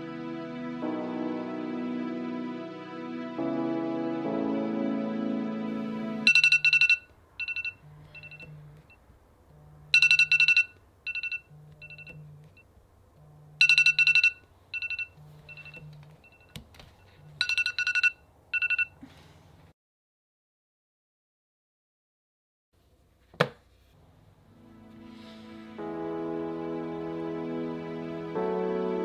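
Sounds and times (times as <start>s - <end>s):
smartphone alarm ringing: 6.2s - 9.0s, 9.8s - 12.7s, 13.4s - 19.0s
low pulsing buzz: 7.8s - 10.0s, 11.5s - 13.6s.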